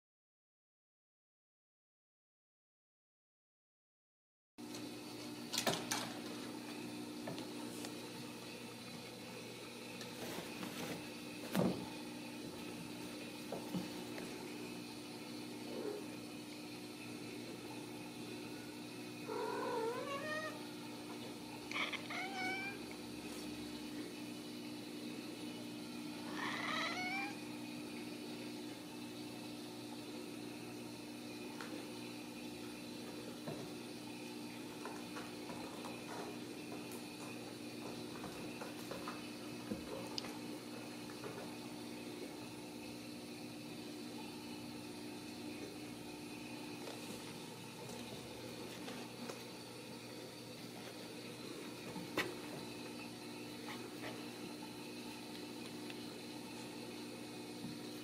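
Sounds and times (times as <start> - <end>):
cat meowing: 19.3 - 20.6, 21.7 - 22.8, 26.3 - 27.4.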